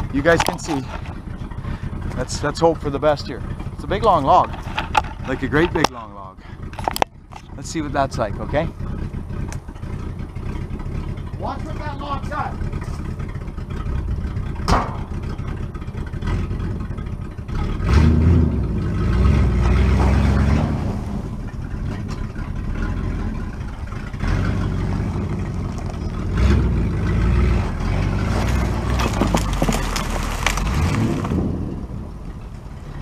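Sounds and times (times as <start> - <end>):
truck engine revving under load: 0.0 - 33.0.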